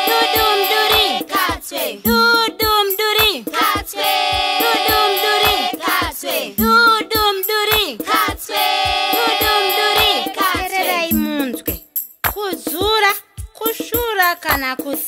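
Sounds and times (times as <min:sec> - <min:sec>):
group singing nursery rhyme: 0:00.0 - 0:11.8
low drum beat: 0:02.1 - 0:03.4, 0:04.4 - 0:12.0.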